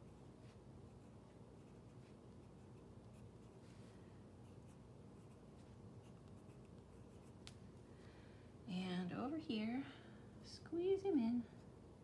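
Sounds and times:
pen scratching on paper: 4.4s - 5.4s.

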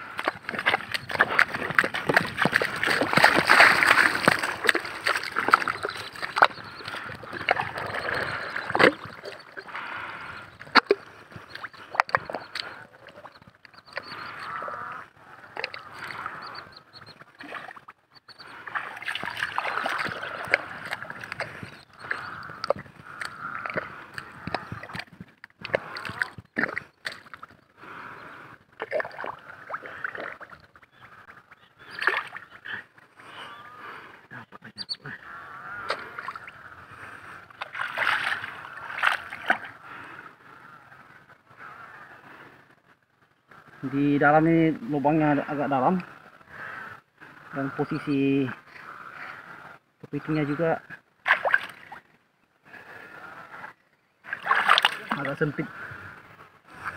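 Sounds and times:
hands sloshing in wet mud: 0.1s - 12.8s, 18.7s - 23.9s, 28.8s - 30.6s, 37.6s - 39.7s, 51.2s - 52.0s, 54.3s - 55.4s
boots splashing through water and mud: 0.2s - 9.4s, 18.7s - 21.6s, 37.6s - 39.7s, 51.3s - 51.9s, 54.3s - 55.3s.

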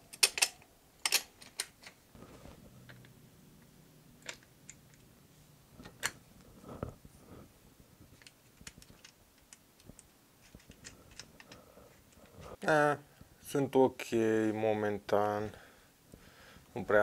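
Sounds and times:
small metal clicks: 0.1s - 2.0s, 8.2s - 12.3s.

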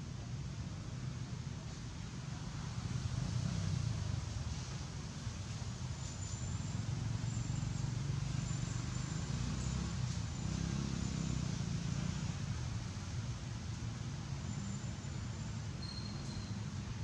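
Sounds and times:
faint insect chirps: 14.4s - 16.9s.

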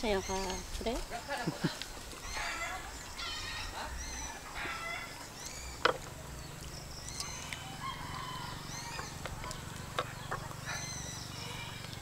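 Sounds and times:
chickens clucking: 7.2s - 12.0s.

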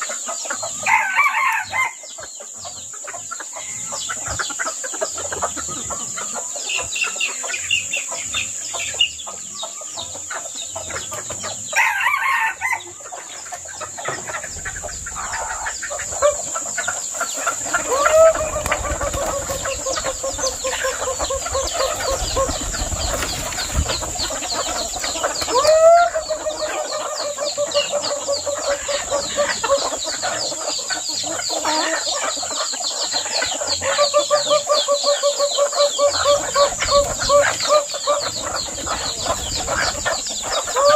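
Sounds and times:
chickens clucking: 0.0s - 40.9s
rooster crowing: 0.8s - 2.0s, 11.8s - 12.9s, 17.7s - 19.4s, 25.4s - 27.9s.

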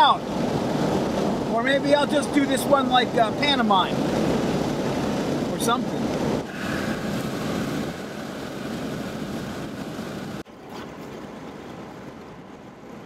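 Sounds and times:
wind and road noise rushing: 0.0s - 13.0s.

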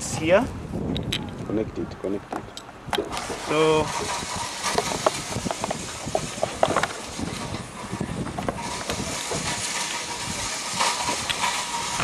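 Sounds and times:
outdoor background hiss: 0.0s - 12.0s
cable plug clicks and rustles: 0.9s - 3.2s.

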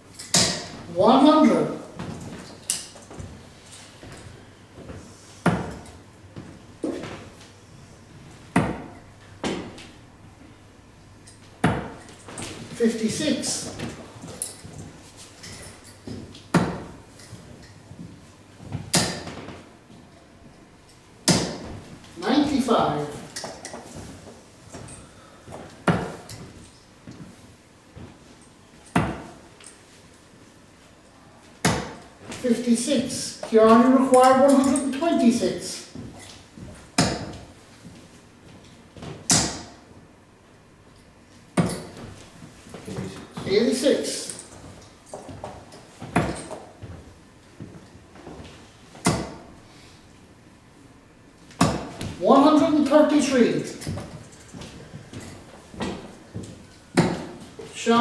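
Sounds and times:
darts thudding into dartboard: 0.3s - 0.8s, 8.5s - 9.8s, 16.5s - 17.0s, 21.2s - 21.7s, 39.2s - 39.8s, 49.0s - 49.5s, 51.6s - 52.2s.

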